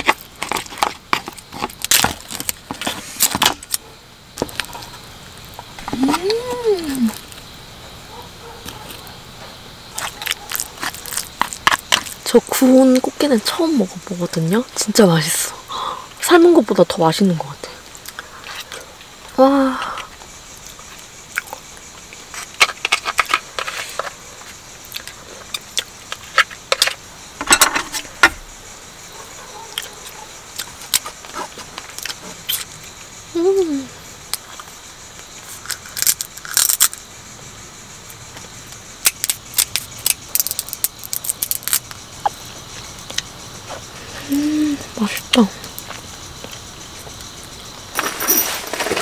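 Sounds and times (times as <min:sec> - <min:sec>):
chewing: 0:08.1 - 0:09.2, 0:09.9 - 0:12.2, 0:20.6 - 0:26.4, 0:29.5 - 0:33.0
crab shell cracking: 0:10.0 - 0:12.3, 0:35.7 - 0:37.0, 0:39.0 - 0:42.0.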